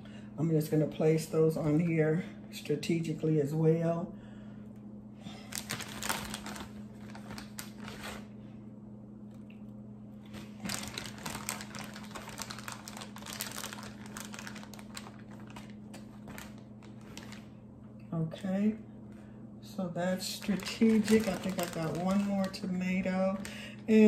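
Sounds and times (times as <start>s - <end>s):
steady low hum: 0.0s - 24.0s
plastic bag crinkling: 5.3s - 8.3s, 10.3s - 17.6s, 20.2s - 24.0s.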